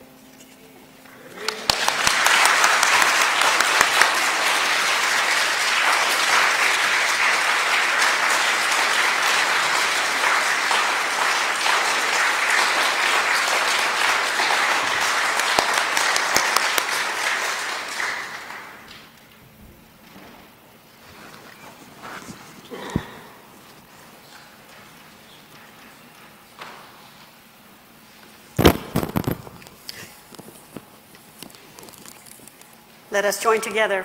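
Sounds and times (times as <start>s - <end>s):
congregation applauding: 1.0s - 19.2s, 21.1s - 26.8s.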